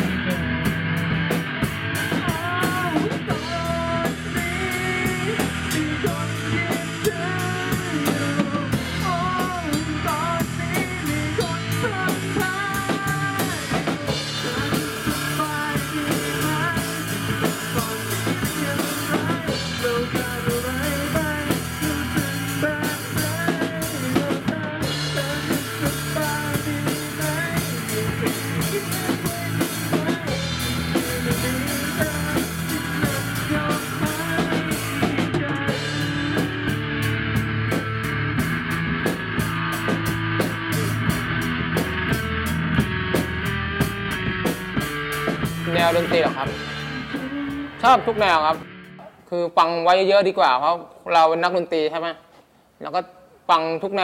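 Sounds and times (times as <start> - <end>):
electric guitar: 0.0 - 49.3
drum kit with cymbals: 0.0 - 49.6
man singing into a microphone: 2.1 - 37.1, 45.6 - 48.7.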